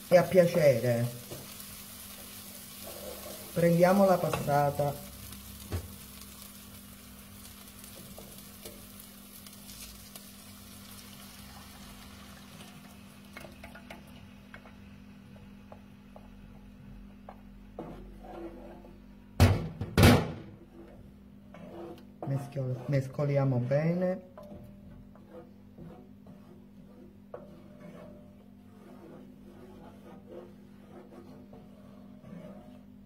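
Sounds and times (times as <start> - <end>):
onion sizzling in a pan: 0.0 - 14.5.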